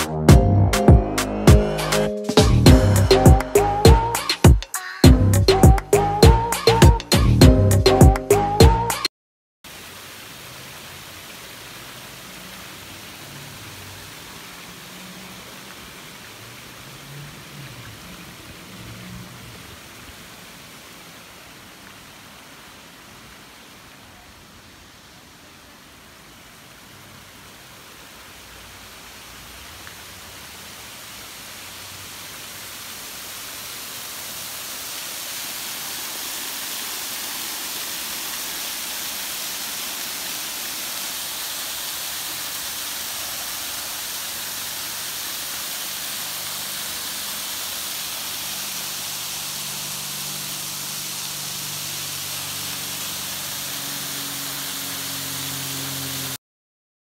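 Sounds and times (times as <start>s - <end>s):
water splashing over fountain: 9.7s - 56.4s.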